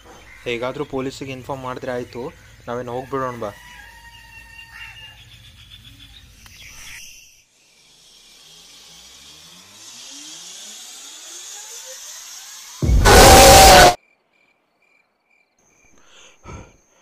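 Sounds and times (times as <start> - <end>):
rising whine: 7.6 - 14.0.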